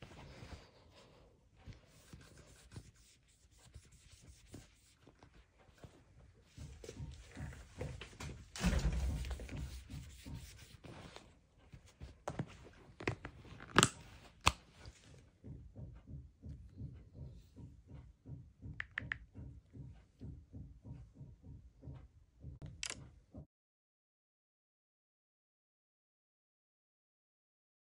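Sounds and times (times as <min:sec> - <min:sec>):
phone rubbing on cloth: 0:01.7 - 0:05.3, 0:09.0 - 0:12.2
plastic clicks and taps: 0:18.6 - 0:19.5.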